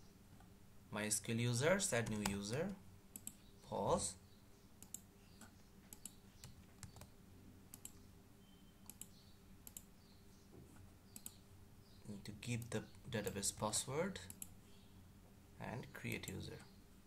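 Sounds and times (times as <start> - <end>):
computer mouse clicks: 3.1 - 3.4, 4.8 - 7.1, 7.7 - 8.0, 8.8 - 9.9, 11.1 - 11.4, 14.3 - 14.5.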